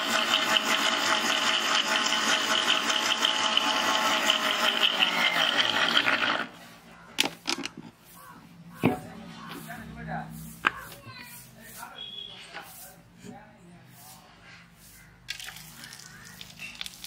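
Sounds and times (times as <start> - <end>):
mixer grinder running: 0.0 - 6.6.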